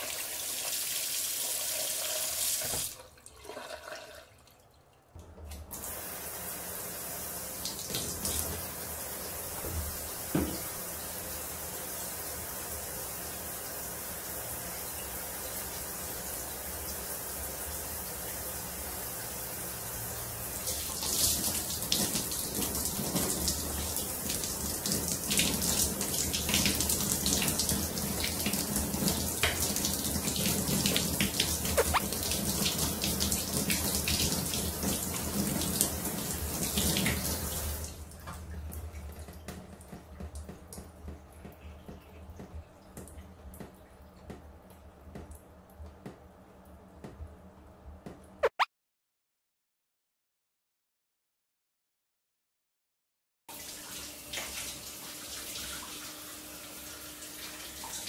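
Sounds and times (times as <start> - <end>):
faint water drips: 38.1 - 46.0.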